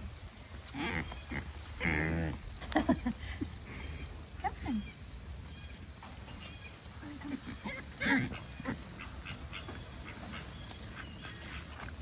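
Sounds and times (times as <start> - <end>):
farm animals grunting: 0.6 - 2.6, 6.5 - 12.0.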